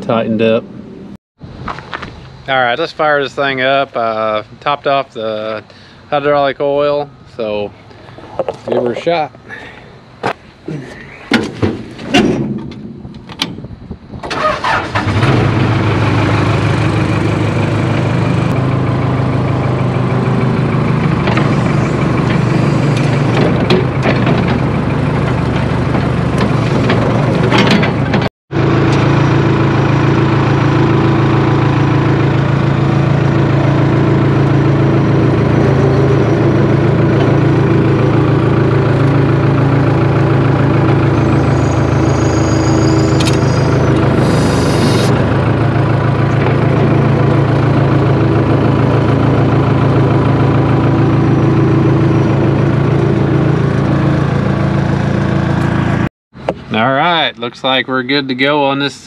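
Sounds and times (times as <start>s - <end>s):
diesel engine cranking and running: 14.2s - 56.8s.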